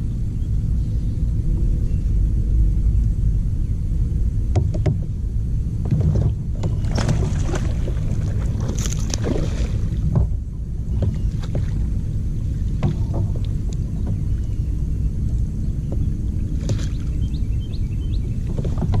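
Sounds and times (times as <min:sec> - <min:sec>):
steady low rumble: 0:00.0 - 0:19.0
gear knocking against kayak: 0:04.5 - 0:05.1, 0:08.3 - 0:11.8, 0:12.7 - 0:14.6, 0:18.4 - 0:19.0
water splashing: 0:05.8 - 0:14.4.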